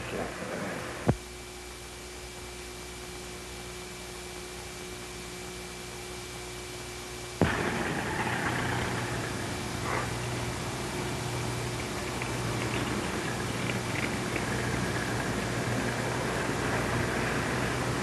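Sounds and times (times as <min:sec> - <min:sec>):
steady hum with fixed tones: 0:00.0 - 0:18.0
faint hiss: 0:07.4 - 0:18.0.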